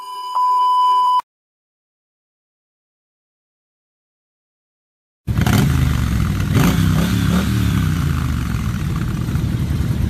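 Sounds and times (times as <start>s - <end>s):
motorcycle engine revving: 5.3s - 10.0s.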